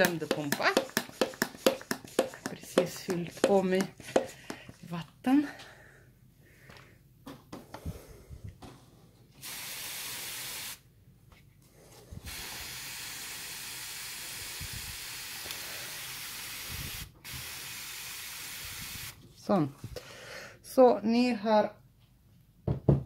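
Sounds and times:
pressure sprayer spraying water: 0:09.4 - 0:10.8, 0:12.3 - 0:19.2.

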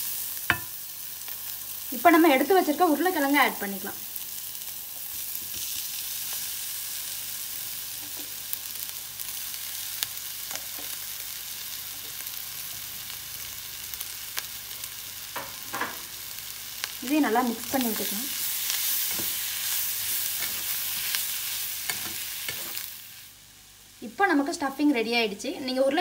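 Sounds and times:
oil sizzling in frying pan: 0:00.0 - 0:26.0.

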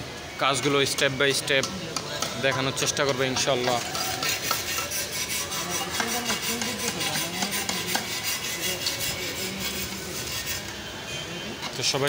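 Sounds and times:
metal tools scraping: 0:02.4 - 0:10.8.

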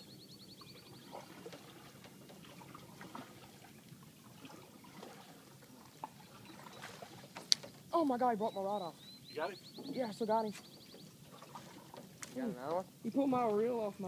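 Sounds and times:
faint ticks and knocks: 0:01.2 - 0:04.0, 0:07.1 - 0:07.9, 0:10.8 - 0:12.4.

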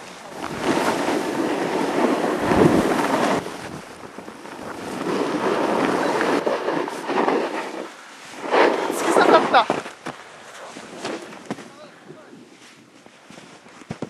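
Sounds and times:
wind buffeting microphone: 0:00.0 - 0:07.9
snowboard sliding through powder: 0:00.0 - 0:14.0.

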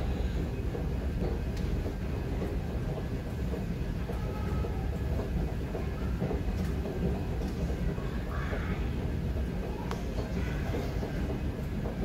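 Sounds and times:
subway train rumble: 0:00.0 - 0:12.0
faint clicks: 0:09.8 - 0:11.2.

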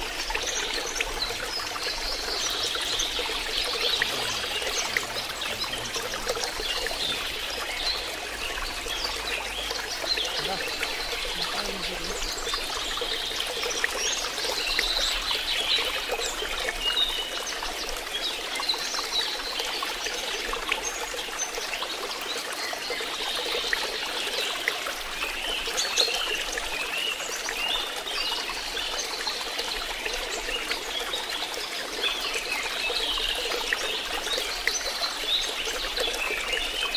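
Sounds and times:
small birds chirping: 0:00.0 - 0:36.9
water trickling: 0:00.0 - 0:36.9.

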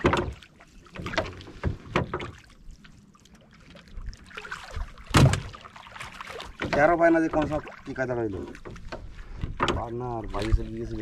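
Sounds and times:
knocks against wooden hull: 0:00.0 - 0:02.4, 0:05.0 - 0:11.0.

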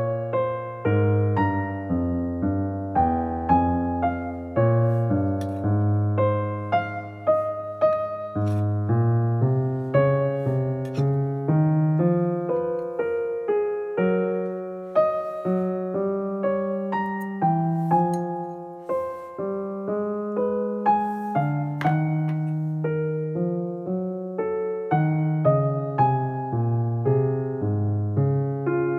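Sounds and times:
gentle piano piece: 0:00.0 - 0:28.9.

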